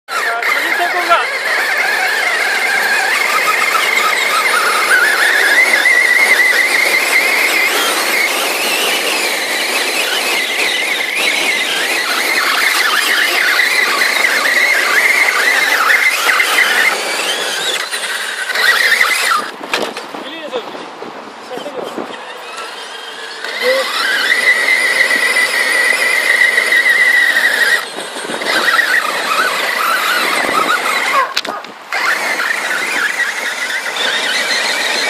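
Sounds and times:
rc truck motors whining: 0.1 - 35.0.

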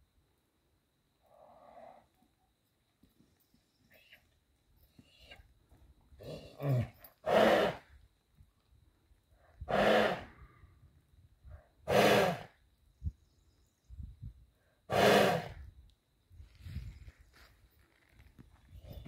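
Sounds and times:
horse snorting loudly: 6.2 - 7.8, 9.7 - 10.3, 11.9 - 12.5, 14.9 - 15.6.

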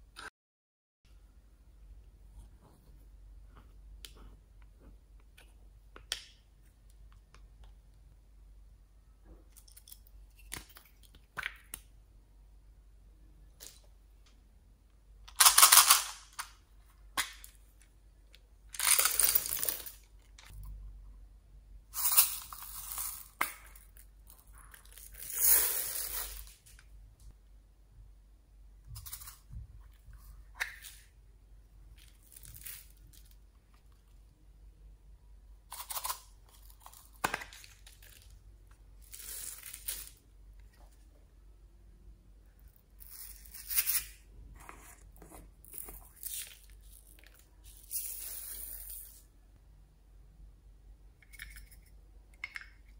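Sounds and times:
beads pouring and rattling: 22.0 - 23.4, 24.7 - 26.7.

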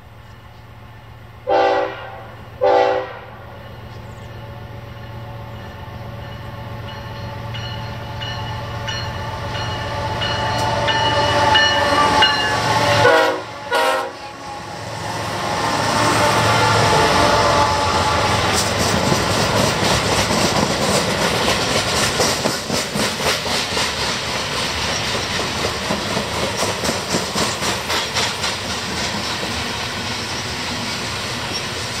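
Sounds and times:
diesel locomotives passing: 0.0 - 32.0
train horn blasts: 1.4 - 3.5, 9.4 - 18.6
train wheels rolling: 3.4 - 32.0.

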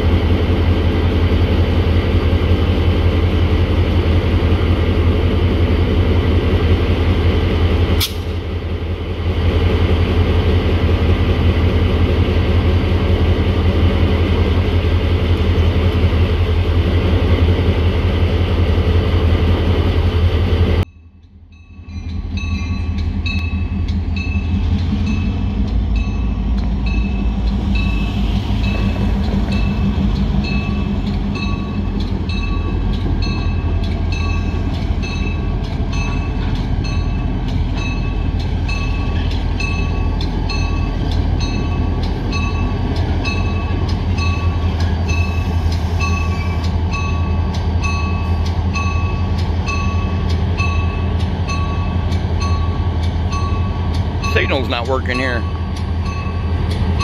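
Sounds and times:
diesel locomotive engine rumbling: 0.0 - 57.0
locomotive bell ringing: 20.9 - 57.0.

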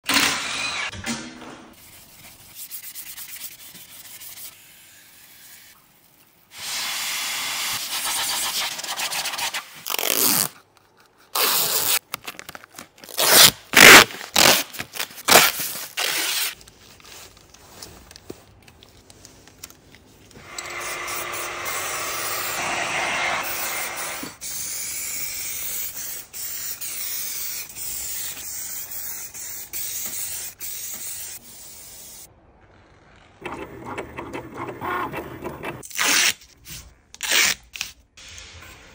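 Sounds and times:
aerosol spray can hissing: 20.5 - 32.3.

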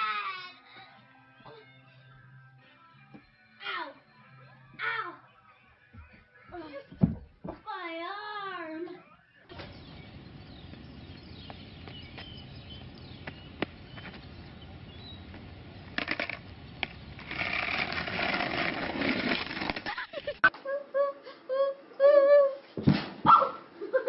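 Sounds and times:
steady outdoor hiss: 9.5 - 24.0
skateboard clacks: 15.4 - 20.0.

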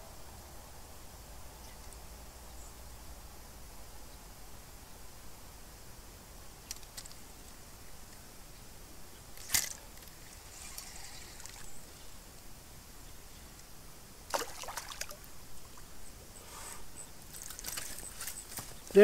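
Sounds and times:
light rustling: 16.4 - 19.0.

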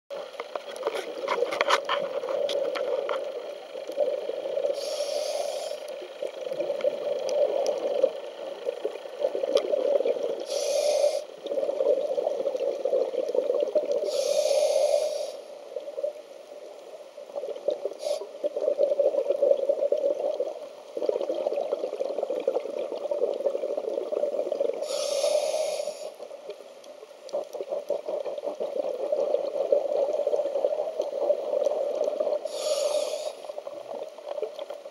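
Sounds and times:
muffled underwater water rush: 0.1 - 34.9
exhaled bubbles hissing: 0.2 - 34.9
regulator breathing: 4.0 - 6.2, 10.4 - 11.4, 24.8 - 26.3, 32.5 - 33.6.

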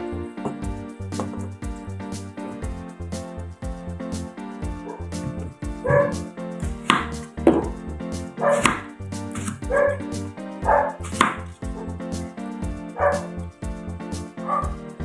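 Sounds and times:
background music: 0.0 - 15.0
dog barking: 4.8 - 5.1, 5.8 - 6.2, 8.4 - 8.8, 9.7 - 10.0, 10.6 - 11.0, 13.0 - 13.3, 14.4 - 14.8
knife slicing on chopping board: 8.5 - 9.7, 11.0 - 11.4.

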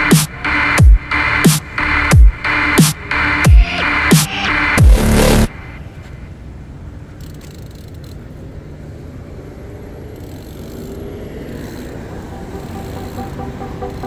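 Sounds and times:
bike tyres rolling on asphalt: 5.9 - 14.0.

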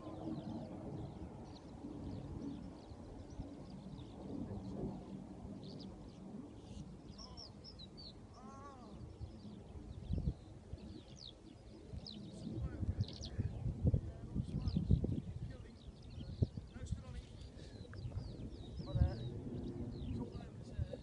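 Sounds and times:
small birds chirping: 0.0 - 21.0
wind buffeting microphone: 0.0 - 21.0
harsh bird calls: 6.6 - 13.6.

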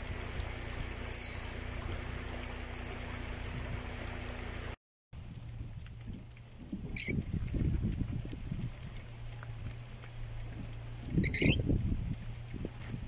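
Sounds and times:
floodwater flowing: 0.0 - 13.0.

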